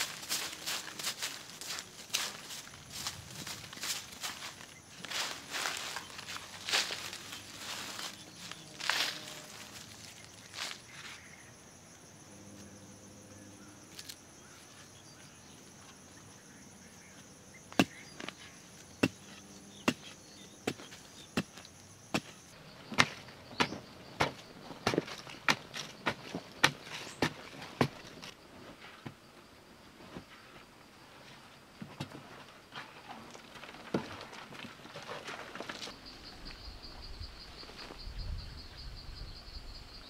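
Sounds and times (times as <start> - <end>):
insect drone: 0.0 - 40.0
stick thudding on hard earth: 20.7 - 28.2.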